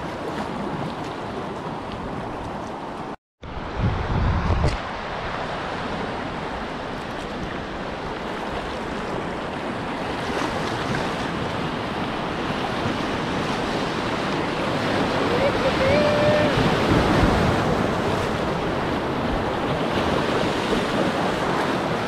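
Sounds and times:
whitewater rushing: 0:13.1 - 0:22.0.

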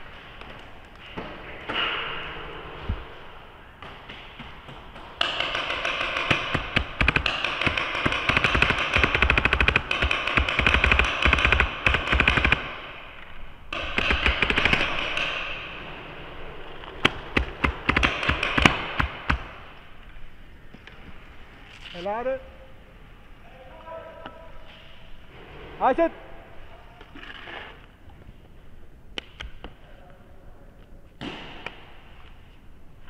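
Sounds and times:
paintball markers firing: 0:05.2 - 0:13.0, 0:13.7 - 0:15.6, 0:17.0 - 0:19.8.

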